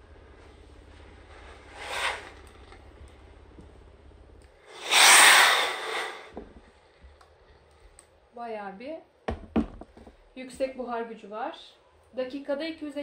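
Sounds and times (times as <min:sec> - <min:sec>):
steam iron hissing: 0:01.5 - 0:02.6, 0:04.6 - 0:06.4.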